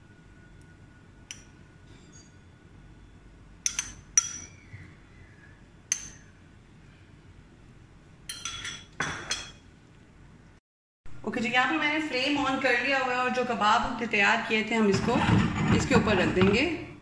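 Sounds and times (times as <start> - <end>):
metal spoon clinking against bowl: 3.6 - 4.6, 8.3 - 9.6.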